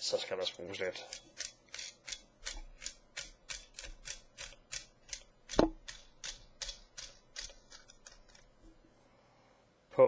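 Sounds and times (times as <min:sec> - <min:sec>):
metal threads rasping: 0:00.9 - 0:08.6.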